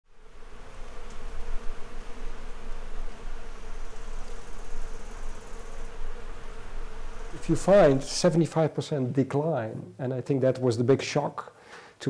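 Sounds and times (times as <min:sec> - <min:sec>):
flying insect buzzing: 0:00.1 - 0:08.8.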